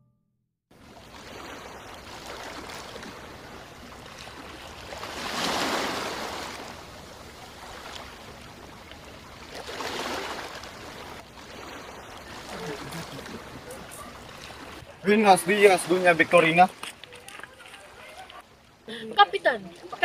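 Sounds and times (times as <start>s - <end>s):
sea waves washing: 0.8s - 20.0s.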